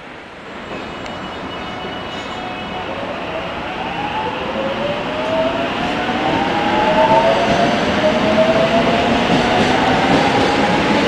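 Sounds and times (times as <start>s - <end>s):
wheels rumbling on rail: 3.9s - 11.0s.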